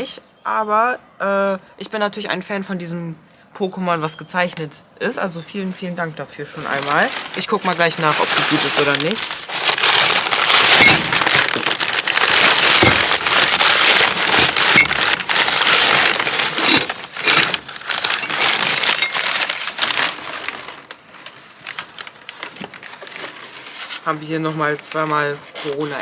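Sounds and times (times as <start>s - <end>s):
packing paper rustling: 5.6s - 26.0s.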